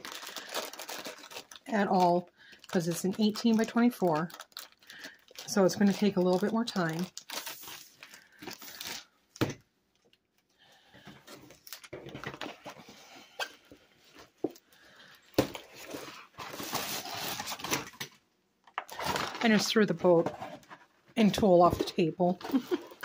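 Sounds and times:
plastic wrap rustling and crinkling: 0.0 - 10.5, 11.1 - 14.6, 15.4 - 18.1, 18.7 - 23.0.

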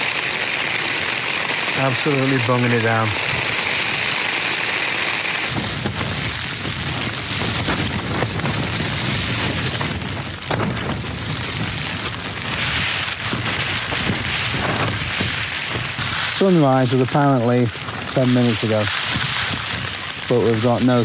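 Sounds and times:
heavy rain on tent fabric: 0.0 - 21.0
low rumble: 5.5 - 16.3.

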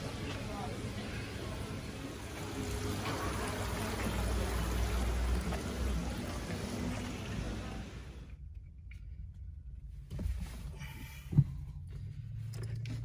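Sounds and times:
busy indoor market hall noise: 0.0 - 8.3.

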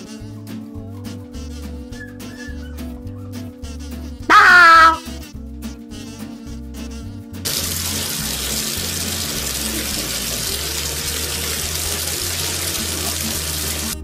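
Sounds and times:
background music: 0.0 - 14.0
tap water pouring into bathtub: 7.5 - 14.0.

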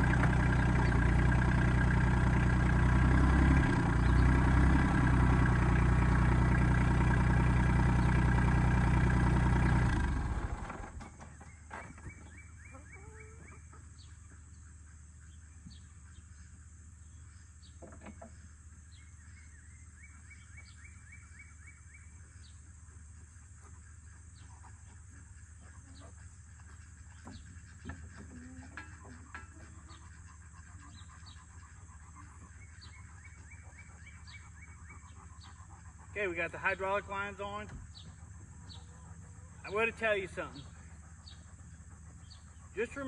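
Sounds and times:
diesel tractor engine idling: 0.0 - 11.6, 27.8 - 43.0
birds chirping: 0.0 - 43.0.

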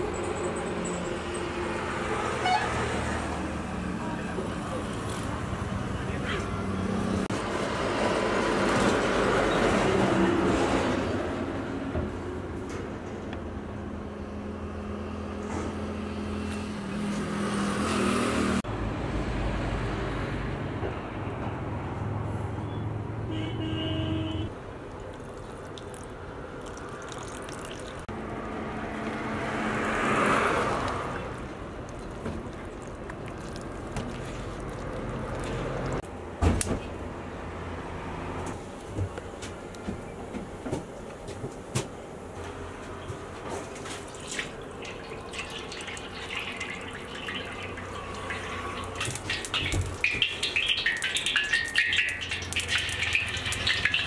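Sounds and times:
roadside traffic: 0.0 - 54.0
vehicle passing: 14.5 - 23.3, 25.7 - 36.1, 37.0 - 38.6, 42.4 - 54.0.

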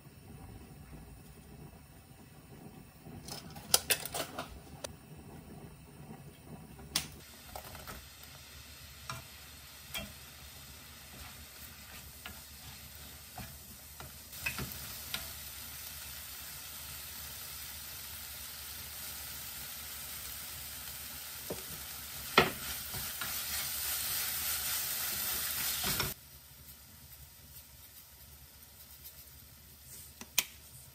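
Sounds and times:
food sizzling in a wok: 7.0 - 30.9
wooden spoon stirring and scraping: 9.0 - 15.4, 21.6 - 30.9.

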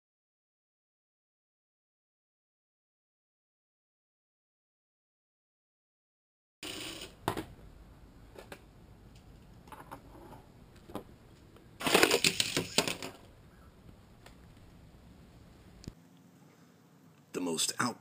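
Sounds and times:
rapid plastic clattering: 11.8 - 13.3.

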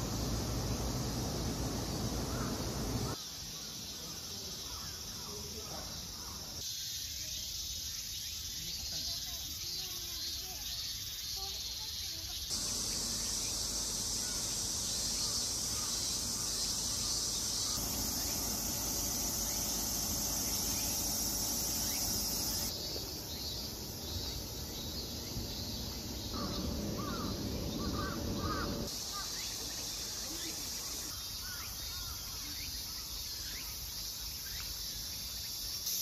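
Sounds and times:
insects shrilling: 0.0 - 3.4, 11.4 - 32.8.

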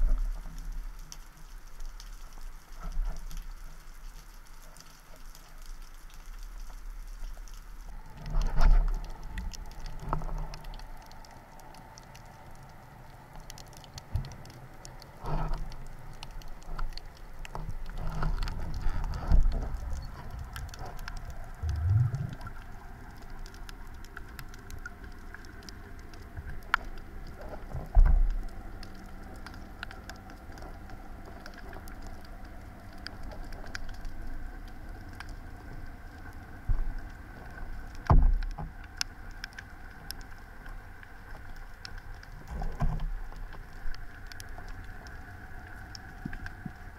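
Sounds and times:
underwater clicking crackle: 0.0 - 46.9
water swishing against camera: 0.0 - 46.9
heavy low thumps: 21.6 - 22.4
short rising low tone: 21.6 - 22.4.

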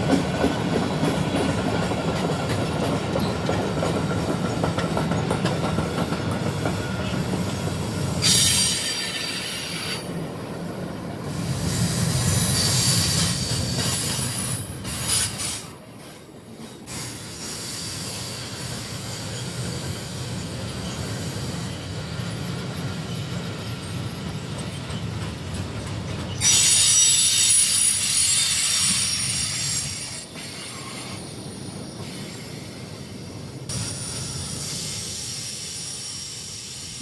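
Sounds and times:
freight wagons rumbling on rails: 0.0 - 17.0, 18.6 - 28.2
high-pitched wheel squeal: 26.4 - 31.3.

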